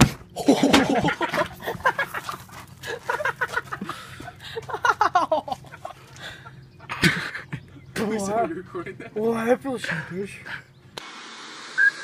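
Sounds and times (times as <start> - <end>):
teenagers laughing: 0.4 - 9.4.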